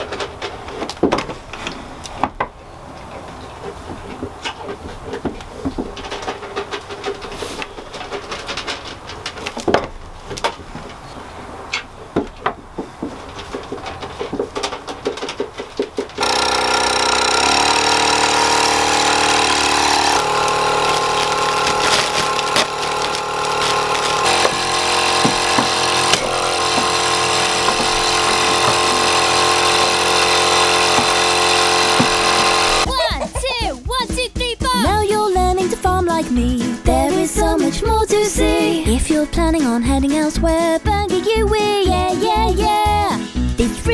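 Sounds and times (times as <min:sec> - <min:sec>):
electric vacuum pump running: 0:16.2 - 0:32.9.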